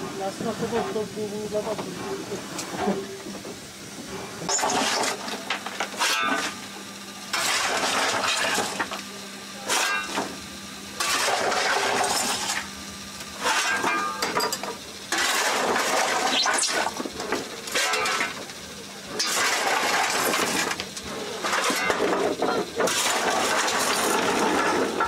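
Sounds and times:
shovel scraping coal: 0:04.4 - 0:06.6, 0:07.3 - 0:08.9, 0:09.6 - 0:10.3, 0:11.0 - 0:12.7, 0:13.4 - 0:14.3, 0:15.1 - 0:18.4, 0:19.1 - 0:25.0.

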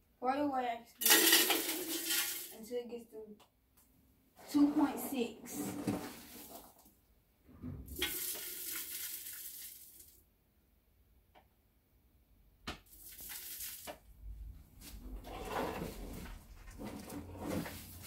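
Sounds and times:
wax flakes pouring: 0:06.1 - 0:06.9, 0:08.0 - 0:10.2, 0:12.9 - 0:13.9.

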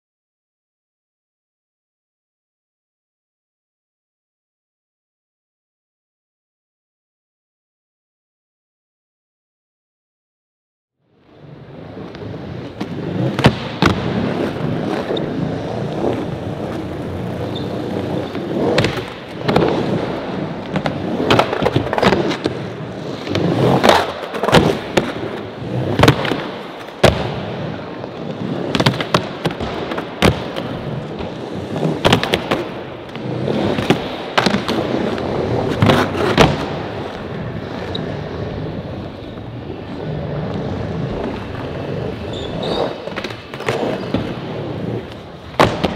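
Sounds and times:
skateboards rolling on plywood ramps: 0:11.2 - 0:45.9
skateboard clacks: 0:12.0 - 0:45.9.

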